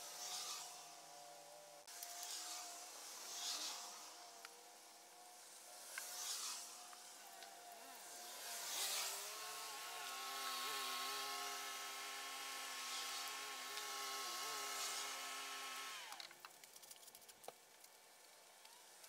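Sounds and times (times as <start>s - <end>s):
motor droning: 7.2s - 16.2s.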